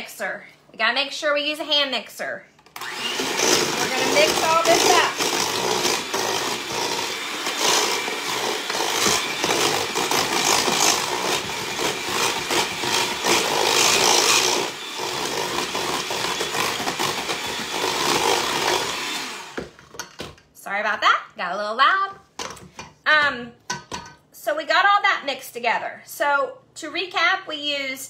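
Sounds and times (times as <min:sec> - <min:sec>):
electric hand mixer whirring: 0:02.8 - 0:19.8.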